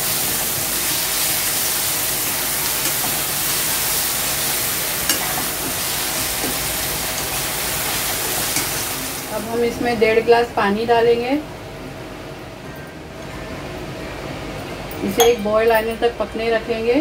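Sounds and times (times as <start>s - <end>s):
vegetables sizzling in a pan: 0.0s - 10.2s.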